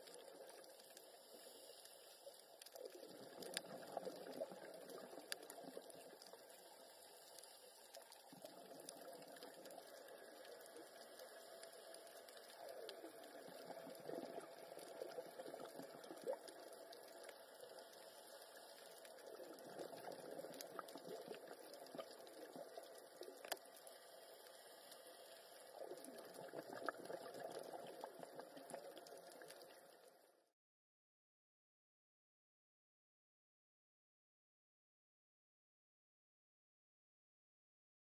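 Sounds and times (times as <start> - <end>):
faint clicks: 0.0 - 30.0
steady hiss: 0.8 - 2.5, 23.8 - 25.9
regulator exhaust bubbles underwater: 2.8 - 6.4, 12.5 - 17.9, 19.2 - 23.6, 25.7 - 29.6.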